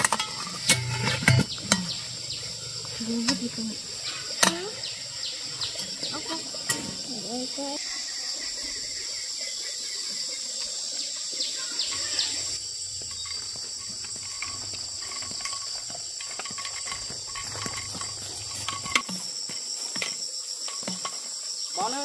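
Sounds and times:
insects chirring: 0:00.0 - 0:22.0
light clicks and rustles: 0:13.0 - 0:19.2.

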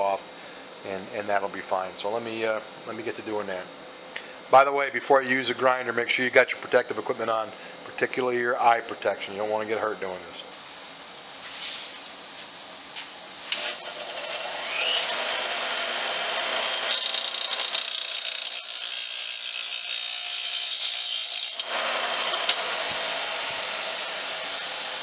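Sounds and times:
bench grinder motor running: 0:13.5 - 0:25.0
metal grinding hiss: 0:13.5 - 0:25.0.

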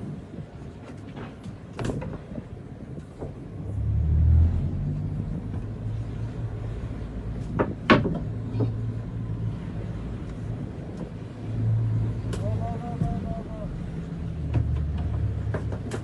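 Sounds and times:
boat engine rumbling: 0:00.0 - 0:16.0.

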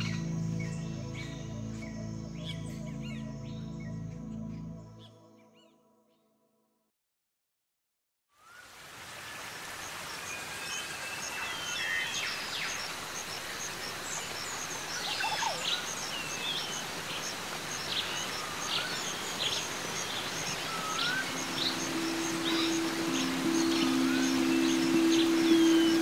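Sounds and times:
steady background hiss: 0:08.4 - 0:26.0
birds chirping and calling: 0:15.0 - 0:26.0.

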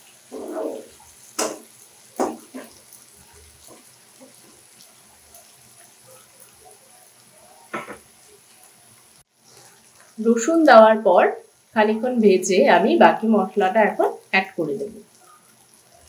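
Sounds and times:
spatula scraping in a wok: 0:00.1 - 0:02.8.

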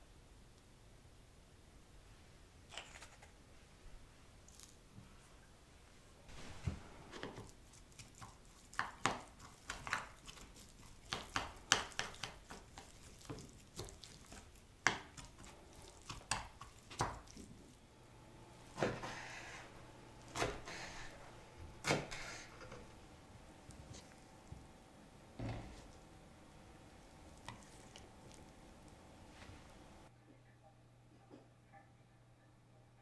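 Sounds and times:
chopsticks scraping a bowl: 0:07.1 - 0:17.5, 0:18.7 - 0:21.2
knife cutting on wooden board: 0:18.7 - 0:21.2.

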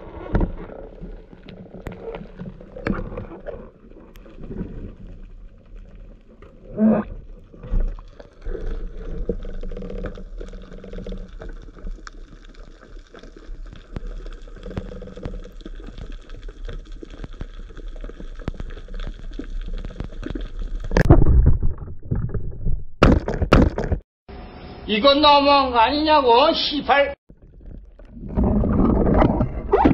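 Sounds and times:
faint clicks and crackles: 0:00.0 - 0:22.7
underwater rumble: 0:00.0 - 0:23.0, 0:27.3 - 0:29.9.

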